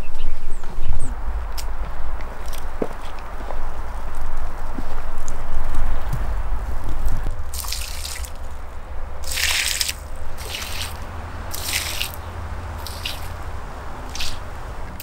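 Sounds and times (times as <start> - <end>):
steady low rumble: 0.0 - 15.0
water splashing onto soil: 6.8 - 15.0.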